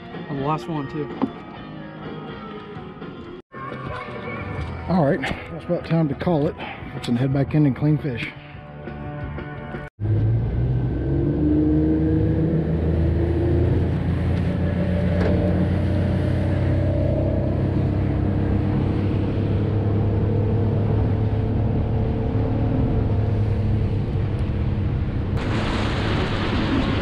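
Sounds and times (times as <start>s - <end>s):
wind: 10.0s - 27.0s
motorboat engine hum: 10.8s - 25.4s.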